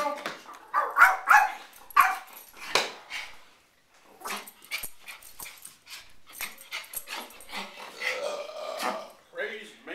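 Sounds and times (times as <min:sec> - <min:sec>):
dog yipping: 0:00.7 - 0:02.3
small dog barking: 0:00.7 - 0:02.3.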